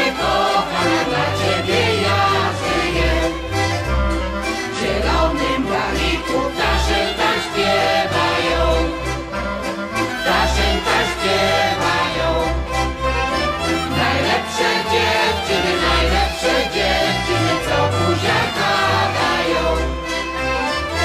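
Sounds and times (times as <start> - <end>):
bass playing long low notes: 0.0 - 21.0
group of voices singing: 0.0 - 21.0
instrumental accompaniment: 0.0 - 21.0.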